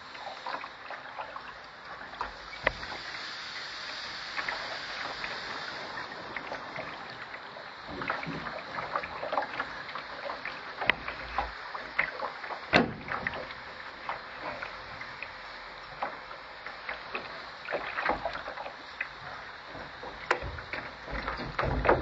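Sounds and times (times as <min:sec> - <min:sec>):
waves lapping against hull: 0:00.0 - 0:22.0
boat clicks and knocks: 0:07.9 - 0:22.0.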